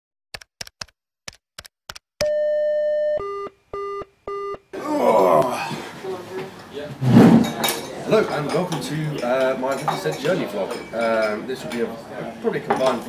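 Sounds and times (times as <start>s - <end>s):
sharp clicks: 0.4s - 2.0s.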